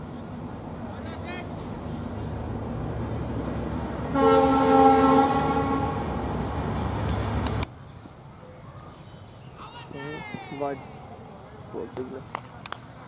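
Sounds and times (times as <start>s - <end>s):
loud horn chord: 4.1s - 6.0s.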